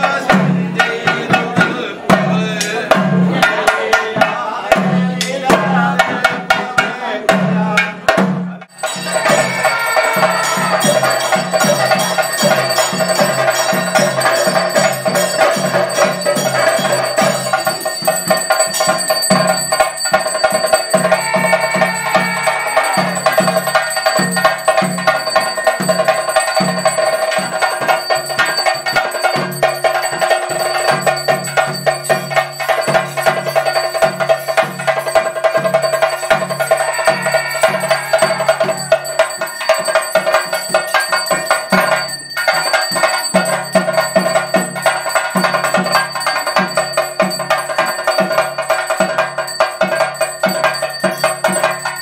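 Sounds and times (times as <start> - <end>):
drums beating fast rhythm: 0.0 - 52.0
metallic ringing: 8.7 - 52.0.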